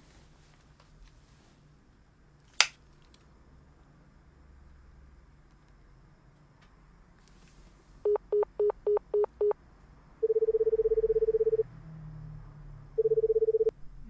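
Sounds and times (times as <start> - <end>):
pulsing phone tone: 8.1 - 9.6, 10.2 - 11.6, 13.0 - 13.8
quick phone beeps: 8.1 - 9.6, 10.2 - 11.6, 13.0 - 13.7.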